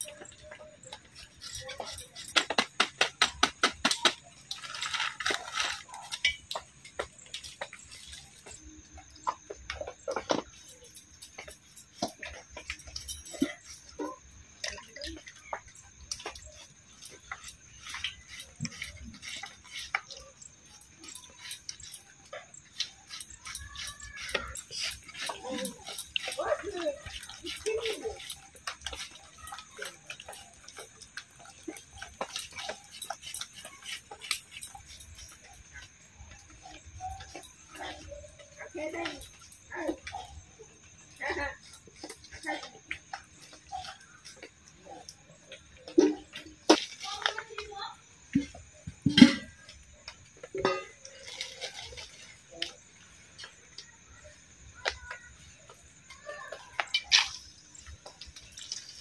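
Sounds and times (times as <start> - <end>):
metal dishes and spoons clinking: 0.0 - 40.4, 48.3 - 52.8
batter worked in steel bowl: 0.0 - 59.0.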